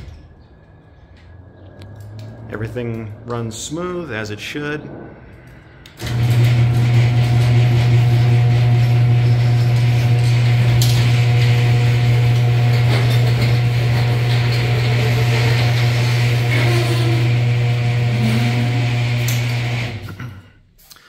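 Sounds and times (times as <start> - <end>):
motor hum: 4.8 - 20.1
garage door opener click: 5.8 - 20.1.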